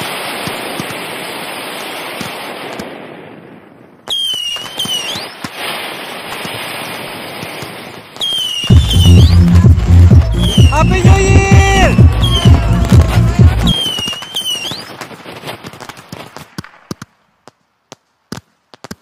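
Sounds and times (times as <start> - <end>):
fireworks crackling: 0.0 - 19.0
fireworks pops and bangs: 0.0 - 19.0
high wavering whistle: 8.2 - 9.4.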